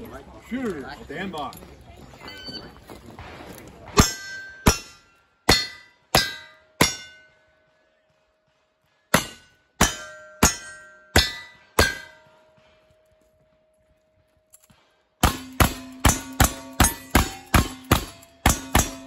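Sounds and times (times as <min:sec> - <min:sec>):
steel target ringing: 0:04.0 - 0:07.7, 0:09.1 - 0:12.6, 0:15.2 - 0:19.0.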